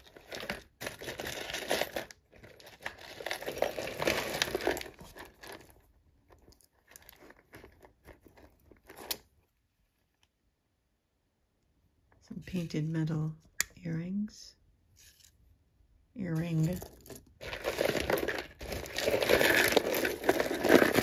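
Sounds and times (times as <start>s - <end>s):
bag crinkling and rustling: 0.0s - 9.3s, 16.8s - 21.0s.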